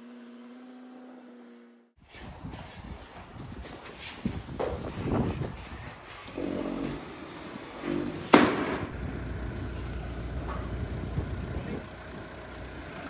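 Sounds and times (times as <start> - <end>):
loader engine running: 6.4 - 13.0.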